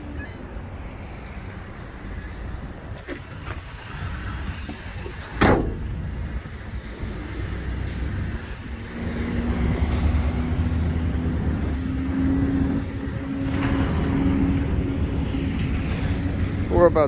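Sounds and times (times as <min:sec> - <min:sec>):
loud slam: 0:05.4 - 0:05.9.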